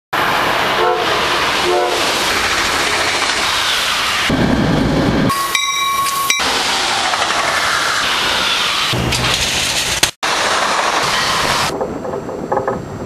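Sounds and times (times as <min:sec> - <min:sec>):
train passing at speed: 0:00.2 - 0:11.7
low rumble of moving train: 0:00.2 - 0:13.0
train horn blasts: 0:00.8 - 0:02.0
steady high tone: 0:04.3 - 0:06.6.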